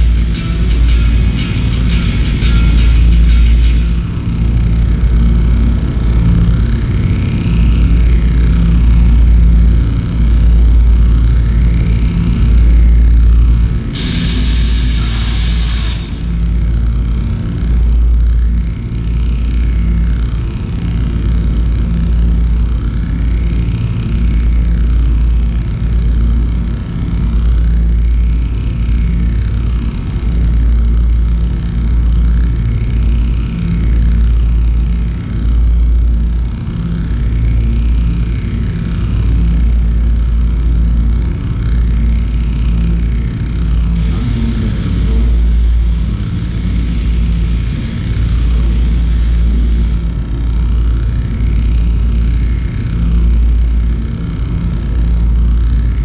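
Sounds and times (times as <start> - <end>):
sweeping electronic tone: 0.0 - 5.3, 13.9 - 17.0, 43.8 - 50.6
deep pulsing drone: 0.0 - 56.0
burst of hiss: 14.0 - 16.6, 44.0 - 50.1.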